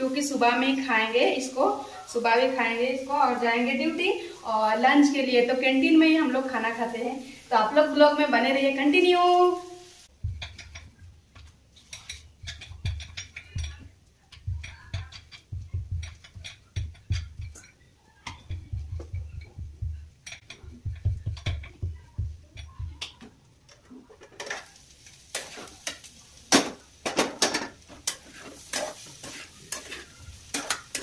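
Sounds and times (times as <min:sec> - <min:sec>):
food sizzling: 0:00.0 - 0:31.0
spatula scraping frying pan: 0:10.2 - 0:19.6, 0:23.7 - 0:31.0.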